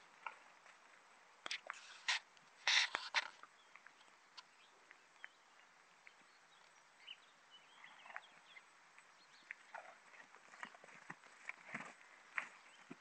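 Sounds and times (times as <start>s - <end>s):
faint bird chirps: 1.8s - 10.8s.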